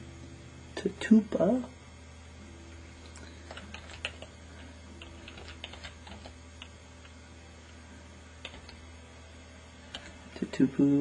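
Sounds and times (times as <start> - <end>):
low steady hum: 0.0 - 11.0
computer keyboard keystrokes: 3.5 - 4.3, 5.0 - 7.1, 8.4 - 8.8.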